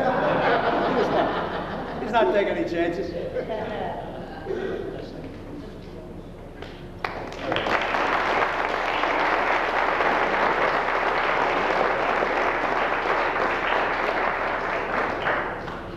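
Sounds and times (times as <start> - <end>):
audience applause: 7.0 - 15.9.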